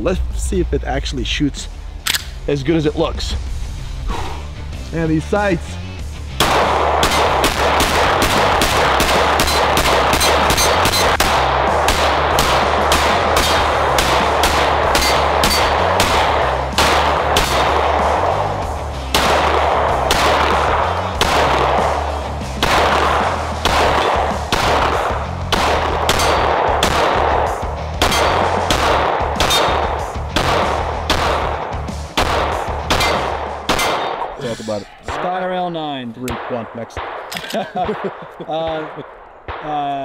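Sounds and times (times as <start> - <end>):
pistol shots echoing: 6.4 - 18.5, 19.1 - 34.4, 36.3 - 40.0.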